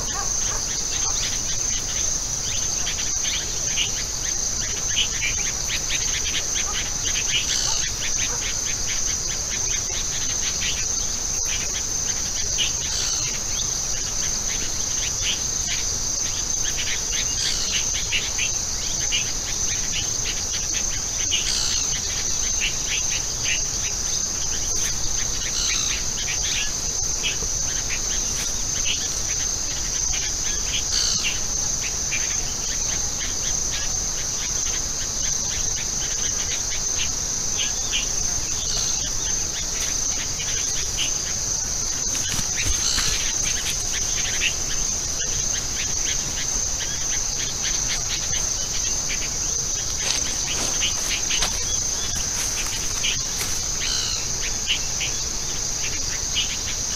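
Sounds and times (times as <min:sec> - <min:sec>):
insect chorus drone: 0:00.0 - 0:56.9
short insect chirps: 0:00.0 - 0:56.9.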